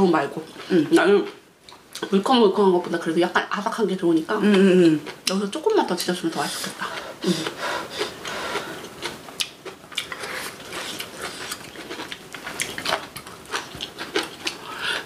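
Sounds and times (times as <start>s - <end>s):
chewing with mouth smacks: 6.8s - 15.0s.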